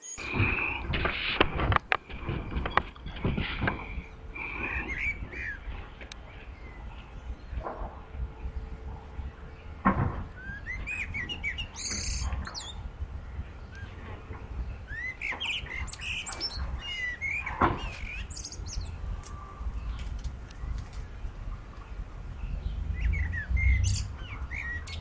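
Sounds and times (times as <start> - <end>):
songbirds chirping: 0.0 - 25.0
low steady rumble: 0.2 - 25.0
sharp knocks: 9.8 - 12.6, 15.2 - 18.7.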